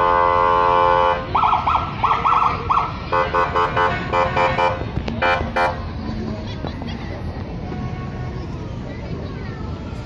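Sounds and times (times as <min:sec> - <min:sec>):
blaring horn tone: 0:00.0 - 0:01.3, 0:03.1 - 0:05.8.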